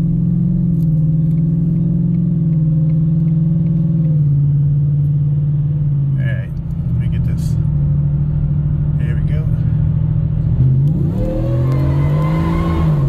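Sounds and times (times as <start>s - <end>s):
engine accelerating: 9.9s - 13.0s.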